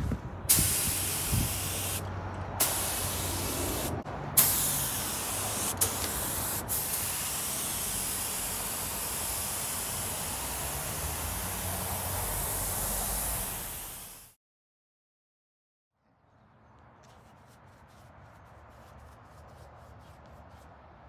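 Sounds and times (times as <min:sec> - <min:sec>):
spray gun hissing: 0:00.5 - 0:02.0, 0:02.6 - 0:14.4.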